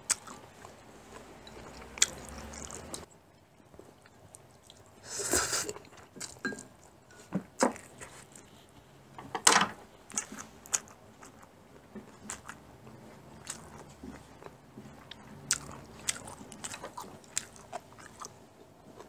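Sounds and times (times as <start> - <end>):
chewing and smacking: 0.1 - 5.0, 5.8 - 7.0, 10.1 - 19.0.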